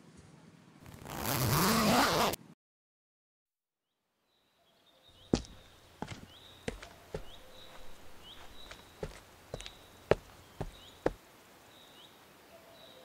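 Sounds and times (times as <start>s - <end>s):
bag zipper closing: 0.9s - 2.4s
faint birds chirping: 3.9s - 13.0s
footsteps on cobblestones: 5.3s - 11.2s.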